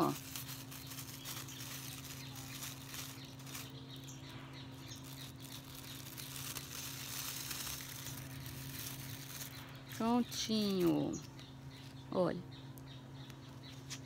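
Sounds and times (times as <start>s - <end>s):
plastic bag crinkling: 0.0s - 11.2s
steady low hum: 0.0s - 14.0s.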